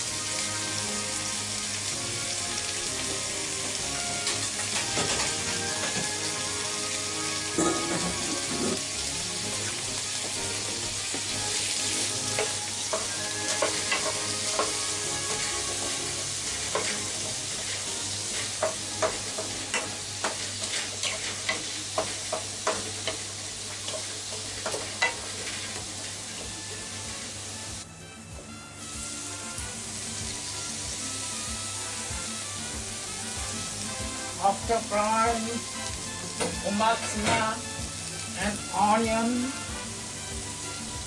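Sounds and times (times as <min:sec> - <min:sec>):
vegetables sizzling in a frying pan: 0:00.0 - 0:41.0
wooden spatula clacking against pan: 0:12.3 - 0:16.0, 0:16.7 - 0:17.0, 0:18.5 - 0:23.3.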